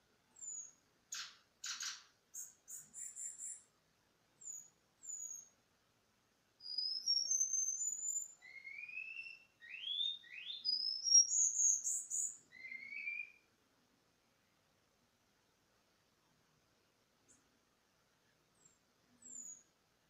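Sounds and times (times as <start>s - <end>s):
bird singing whistled glides: 6.6s - 13.4s.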